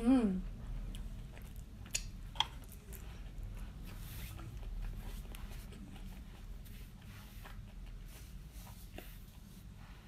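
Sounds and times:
low electrical hum: 0.0 - 10.0
wet mouth clicks chewing: 0.5 - 6.6.

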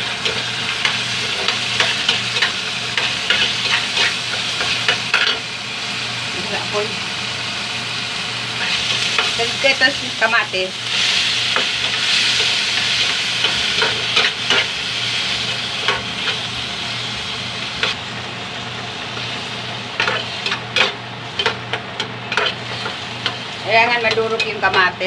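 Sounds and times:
vegetables sizzling in a frying pan: 0.0 - 25.0
metal spatula scraping a pan: 22.2 - 24.9.

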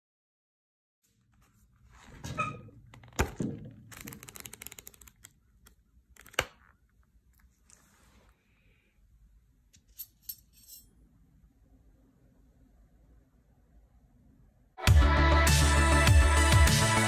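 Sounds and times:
sketchbook pages riffled: 3.0 - 5.4.

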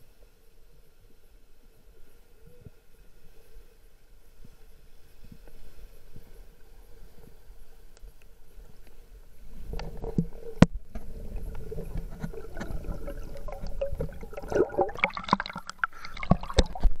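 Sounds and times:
underwater gurgling: 9.3 - 17.0
water splashing: 9.6 - 17.0.

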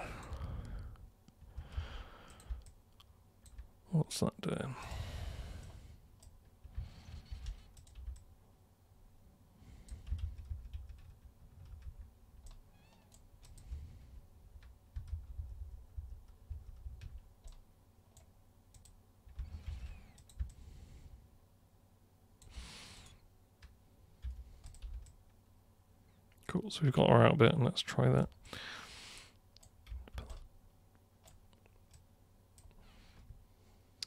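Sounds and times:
computer mouse clicks: 5.6 - 8.3, 9.8 - 13.8, 16.2 - 20.6, 22.4 - 25.2.

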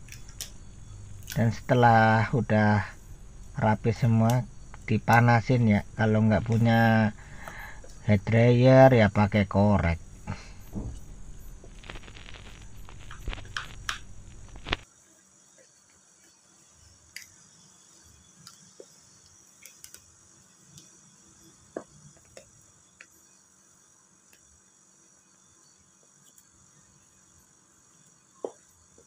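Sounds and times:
plastic squeegee scraping film: 11.7 - 14.8.

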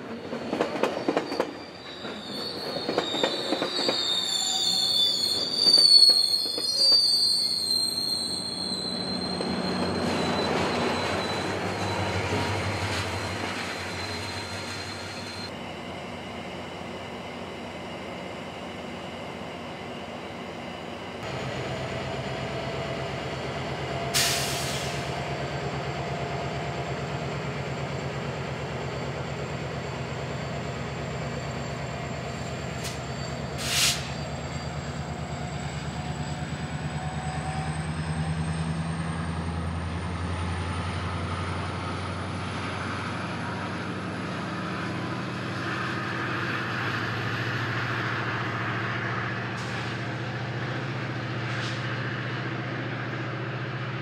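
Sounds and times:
diesel locomotive engine running: 9.2 - 54.0
loud air hiss bursts: 24.2 - 25.1, 33.6 - 34.2.

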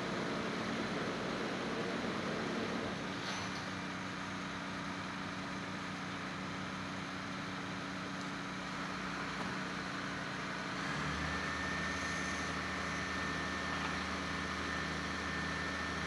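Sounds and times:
faint high whine: 10.8 - 16.0.

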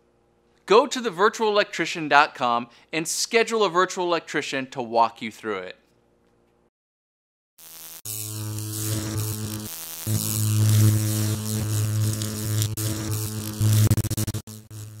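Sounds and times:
electrical buzzing and crackling: 7.6 - 15.0.

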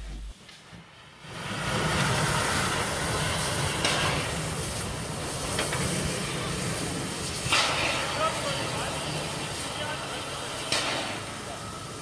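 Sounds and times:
steam hissing: 0.0 - 12.0
faint steam puff: 5.4 - 9.3.

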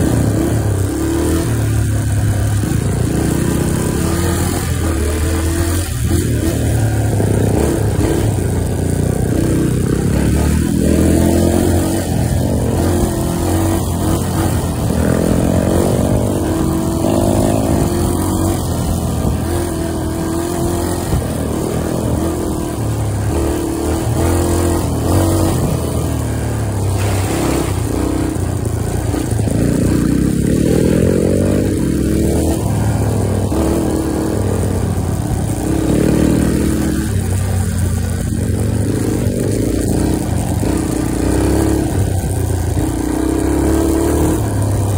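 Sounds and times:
off-road engine revving: 0.0 - 44.9.

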